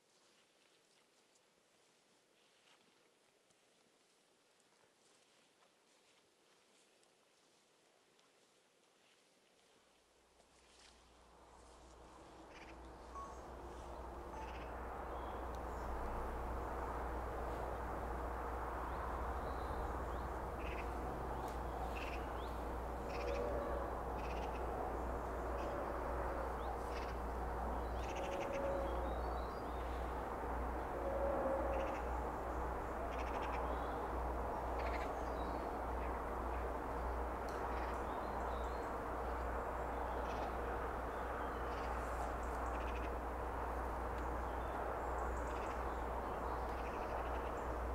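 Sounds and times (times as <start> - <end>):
steady low rumble: 12.2 - 47.9
birds calling: 12.5 - 16.6, 18.8 - 30.2.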